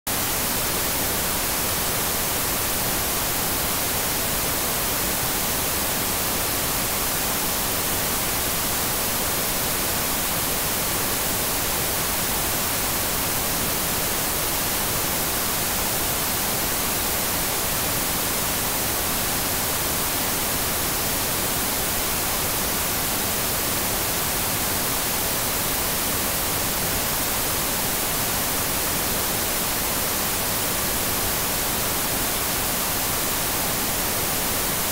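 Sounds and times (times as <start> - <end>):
tv static hiss: 0.1 - 34.9.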